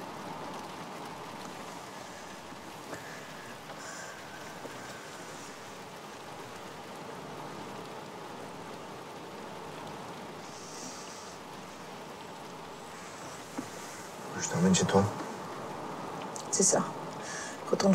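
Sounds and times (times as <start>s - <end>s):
rain on car roof: 0.0s - 17.9s
faint ticks: 0.4s - 6.7s, 9.8s - 11.6s.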